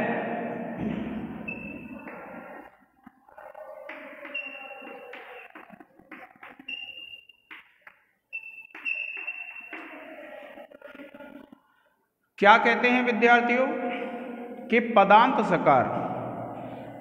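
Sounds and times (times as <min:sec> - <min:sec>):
thin high chalk squeak: 0:06.6 - 0:07.3, 0:08.3 - 0:10.2.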